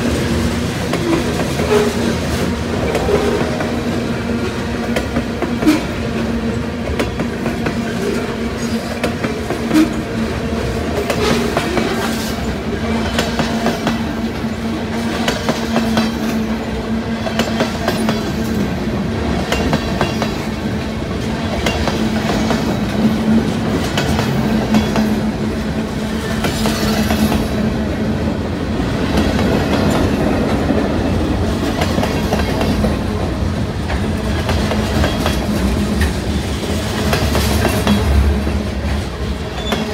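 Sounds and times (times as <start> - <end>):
train rolling rumble: 0.0 - 39.9
steel wheels clicking over rail joints: 19.3 - 25.3, 31.4 - 39.9.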